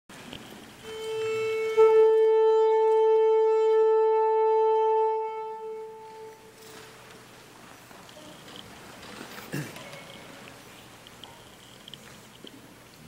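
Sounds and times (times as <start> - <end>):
alto saxophone long note: 0.8 - 7.0.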